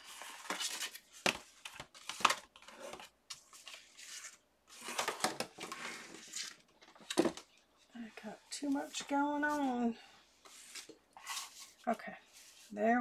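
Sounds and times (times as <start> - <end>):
paper rustling: 0.0 - 7.4, 10.4 - 12.8.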